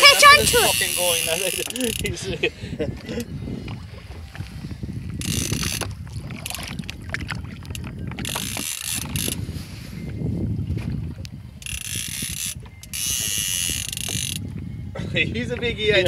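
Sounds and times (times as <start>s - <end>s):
fishing reel ratchet buzzing: 0.0s - 2.2s, 5.2s - 6.6s, 7.7s - 9.5s, 11.6s - 14.5s.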